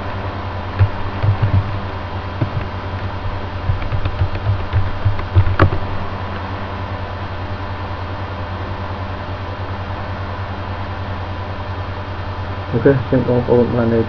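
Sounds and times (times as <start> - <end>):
steady background hum: 0.0 - 14.0
keyboard typing: 0.8 - 1.8, 2.4 - 2.7, 3.7 - 5.8.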